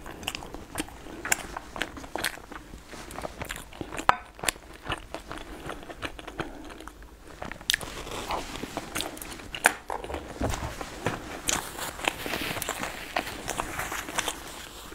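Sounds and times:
chewing with mouth clicks: 0.0s - 10.3s, 11.4s - 14.9s
chopsticks on a bowl: 4.0s - 4.6s.

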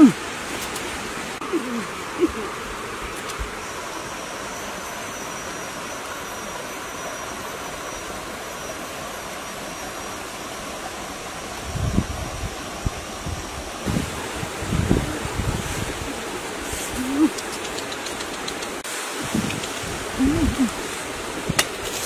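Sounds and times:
wind buffeting microphone: 11.6s - 17.3s, 19.2s - 21.7s.

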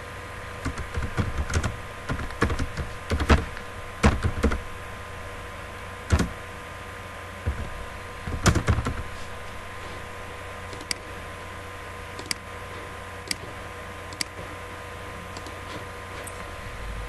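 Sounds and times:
steady electrical hum: 0.0s - 17.0s
keyboard typing clicks: 0.6s - 4.6s, 6.1s - 6.3s, 12.2s - 12.4s, 14.1s - 14.4s.

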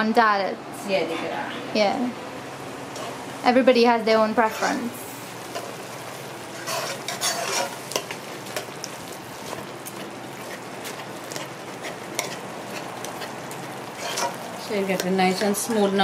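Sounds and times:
stew simmering sizzle: 2.6s - 16.0s
metal spoon stirring in pot: 6.6s - 16.0s
spoon scraping and clicking on pot: 6.7s - 9.0s, 11.3s - 13.3s, 14.0s - 14.4s.

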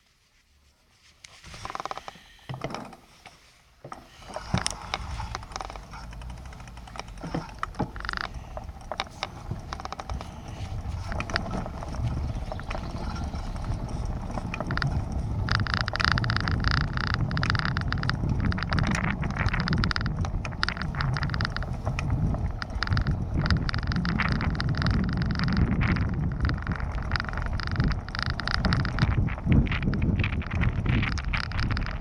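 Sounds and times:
bicycle frame rattling: 1.3s - 32.0s
bicycle tyre rumble on paving: 1.4s - 32.0s.

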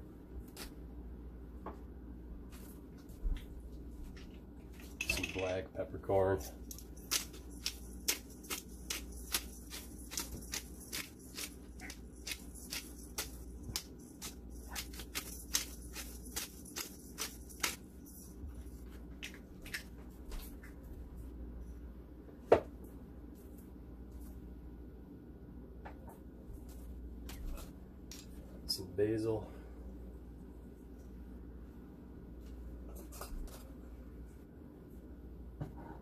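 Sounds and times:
pepper grinder crackling: 6.5s - 18.4s.

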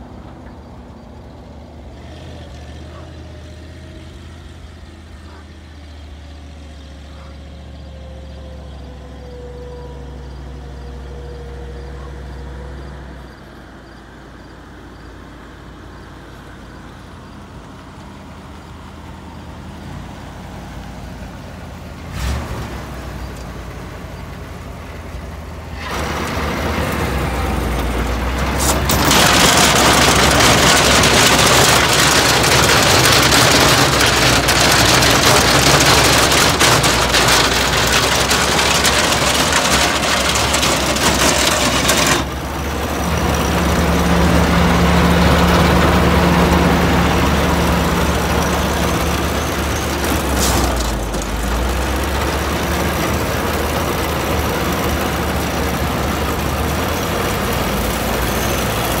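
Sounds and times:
truck engine running: 0.0s - 59.0s
machinery rattling rush: 25.7s - 59.0s.

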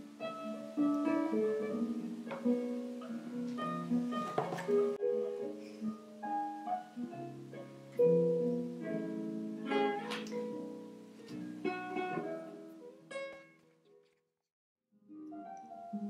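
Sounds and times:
background music with picked notes: 0.0s - 14.0s, 15.0s - 16.0s.

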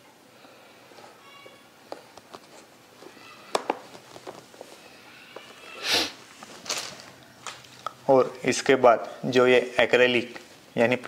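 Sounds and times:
plastic scraping rustles: 2.0s - 7.8s.

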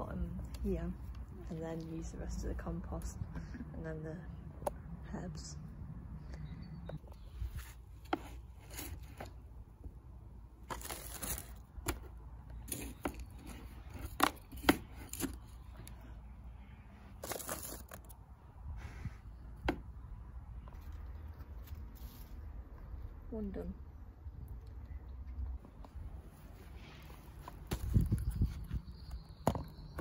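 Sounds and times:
plastic rustling: 10.6s - 15.7s, 17.1s - 18.2s.

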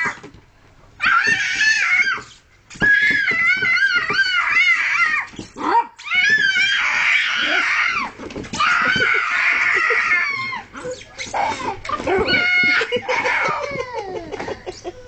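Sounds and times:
young child screaming: 6.0s - 10.7s, 11.3s - 14.0s.

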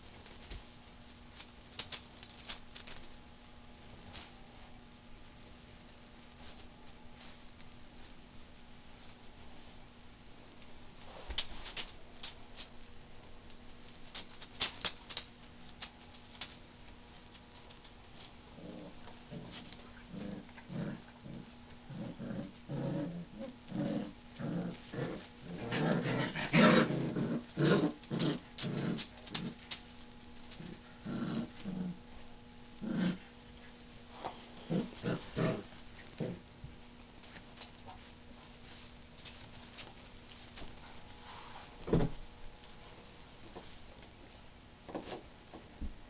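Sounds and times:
puppies growling: 18.2s - 36.6s.

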